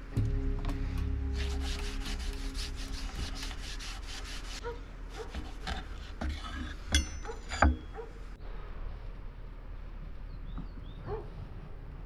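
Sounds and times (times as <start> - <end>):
wax rubbed on hot steel: 1.2 - 6.8.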